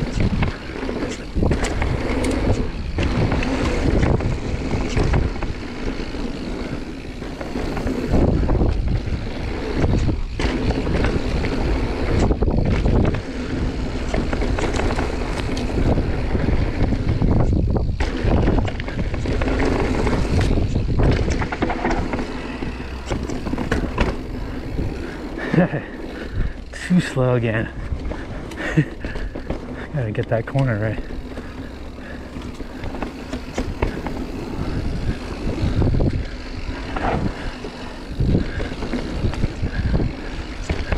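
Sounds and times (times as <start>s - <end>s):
bike tyres on dirt: 0.0s - 40.9s
wind rushing over microphone: 0.0s - 40.9s.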